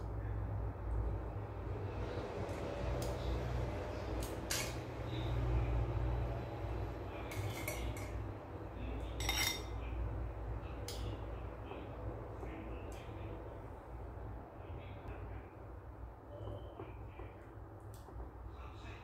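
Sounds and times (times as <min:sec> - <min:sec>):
metal utensil scraping cookware: 0:04.2 - 0:04.9, 0:07.3 - 0:08.2, 0:09.2 - 0:09.8.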